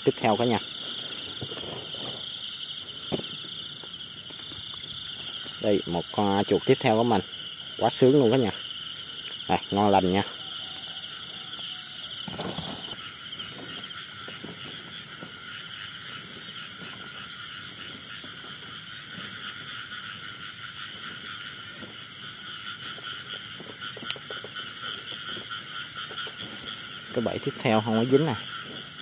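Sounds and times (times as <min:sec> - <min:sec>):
frogs and insects chorus: 0:00.0 - 0:29.0
footsteps rustling through grass: 0:00.6 - 0:05.9, 0:11.1 - 0:29.0.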